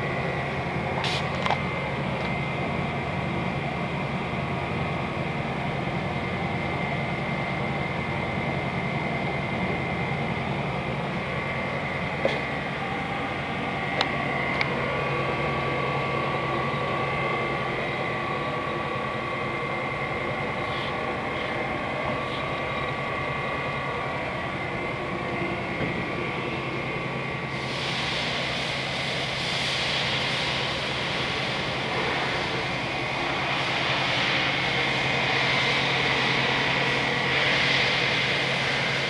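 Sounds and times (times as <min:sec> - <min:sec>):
faint high whine: 0:00.0 - 0:39.0
machinery hum with low rumble: 0:00.0 - 0:39.0.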